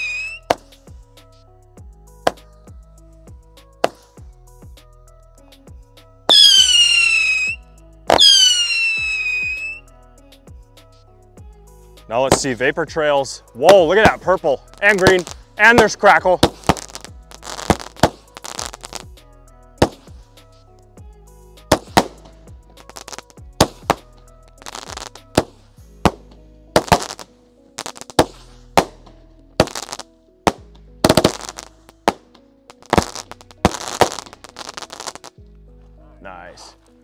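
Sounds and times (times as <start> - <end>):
background music: 0.0 - 37.0
fireworks reports crackling: 12.1 - 19.0, 36.2 - 36.8.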